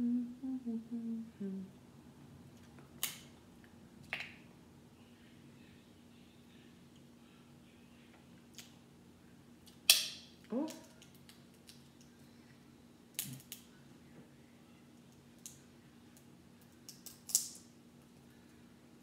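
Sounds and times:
crab shell cracking: 16.8s - 17.6s.

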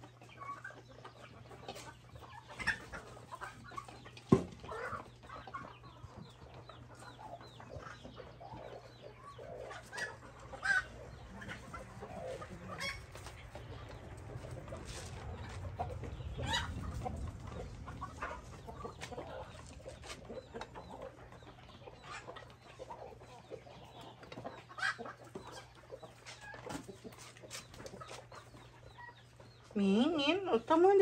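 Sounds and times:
hens clucking: 0.0s - 31.0s.

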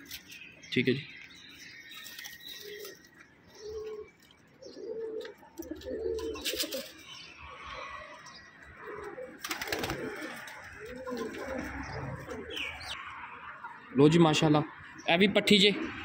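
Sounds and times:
pigeons cooing: 1.9s - 14.1s.

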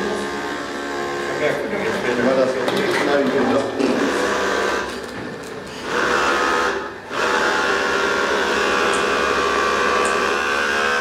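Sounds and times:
small robots buzzing on tiles: 0.0s - 2.9s, 5.8s - 11.0s.

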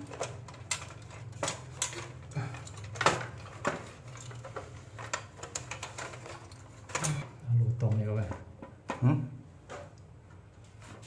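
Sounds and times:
small parts clicking and knocking: 0.0s - 9.0s.

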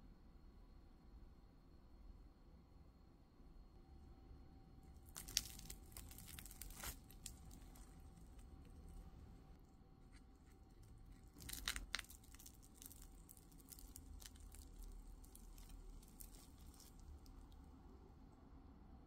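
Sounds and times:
crunchy toast tearing: 4.9s - 9.5s, 10.1s - 17.7s
toast crust crackling: 4.9s - 17.7s.

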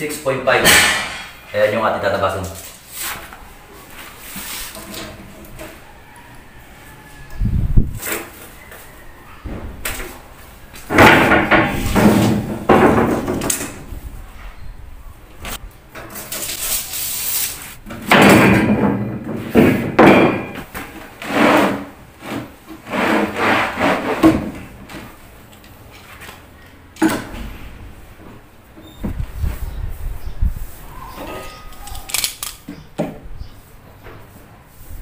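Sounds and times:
plywood sliding and scraping: 10.8s - 13.9s, 15.5s - 25.2s.

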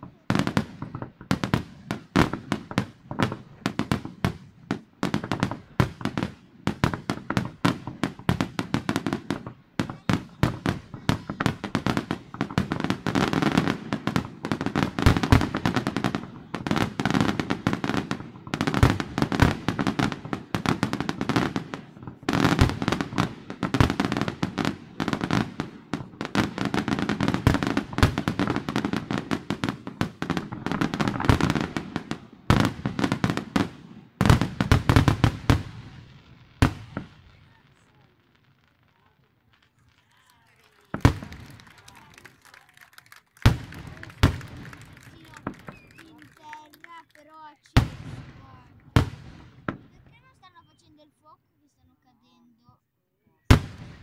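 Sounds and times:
fireworks shells bursting: 43.0s - 50.0s.

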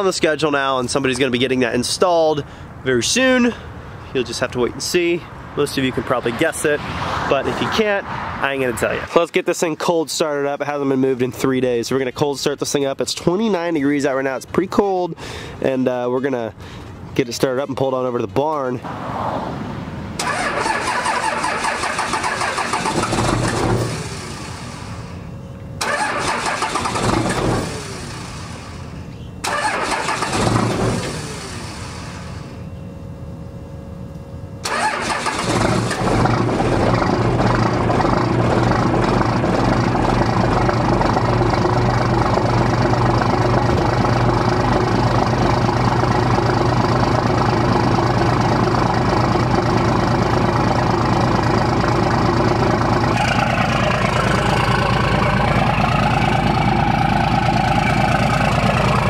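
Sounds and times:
diesel engine cranking: 20.2s - 25.2s, 25.8s - 32.6s, 34.6s - 59.0s
diesel engine idling loudly: 20.2s - 25.2s, 25.8s - 32.5s, 34.7s - 59.0s.

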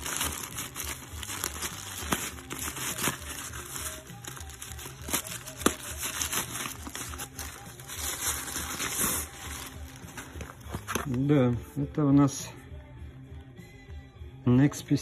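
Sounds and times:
plastic bag crinkling and tearing: 0.0s - 10.2s.

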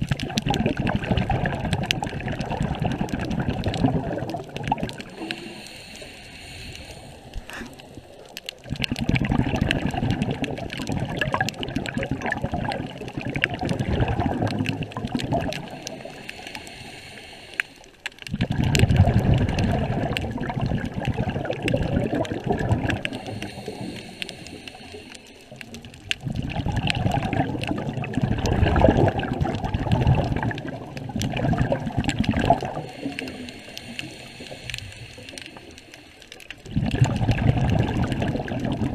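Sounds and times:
underwater bubbles gurgling: 0.0s - 38.9s
faint clicks: 4.3s - 9.0s, 14.4s - 18.9s, 32.0s - 37.2s.

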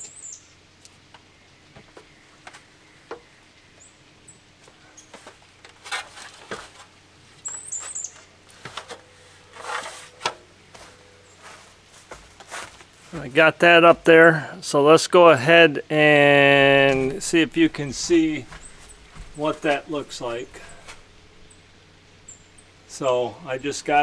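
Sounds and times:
high bird chirps: 7.4s - 8.2s
feet stepping down stepladder: 16.8s - 21.0s.

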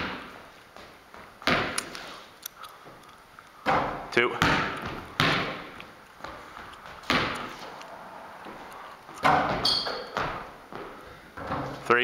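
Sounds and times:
basketball bouncing on wooden floor: 0.0s - 1.8s, 3.6s - 7.5s, 9.2s - 11.8s
short squeak: 9.6s - 10.1s.

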